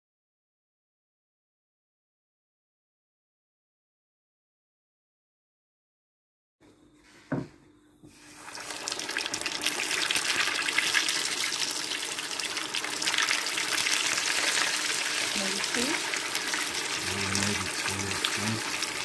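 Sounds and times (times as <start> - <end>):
knock: 7.3 - 7.6
fish deep-frying in oil: 8.2 - 19.0.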